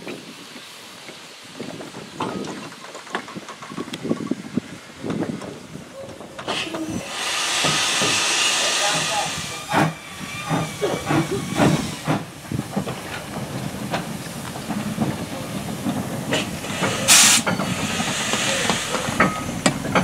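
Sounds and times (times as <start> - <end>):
steam hissing: 0.0 - 20.0
locomotive clanking: 1.0 - 20.0
loud burst of steam: 4.1 - 20.0.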